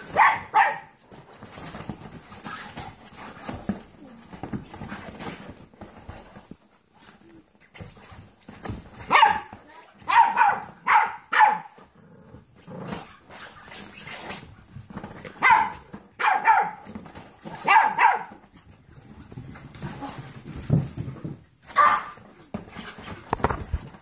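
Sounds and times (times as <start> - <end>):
low growl: 12.0 - 12.9.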